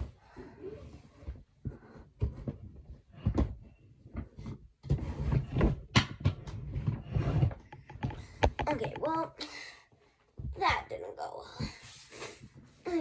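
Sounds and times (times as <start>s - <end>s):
knocks and bumps of object: 1.3s - 9.2s
clattering and rattling: 2.2s - 9.2s.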